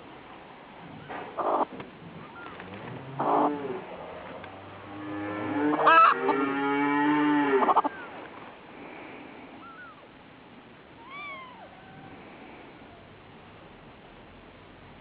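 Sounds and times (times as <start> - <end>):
kittens mewing: 11.0 - 13.1.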